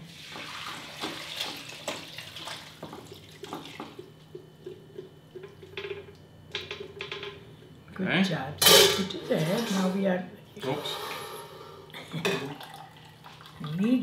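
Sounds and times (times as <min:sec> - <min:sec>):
soup pouring and splashing: 0:00.0 - 0:06.2, 0:12.4 - 0:13.8.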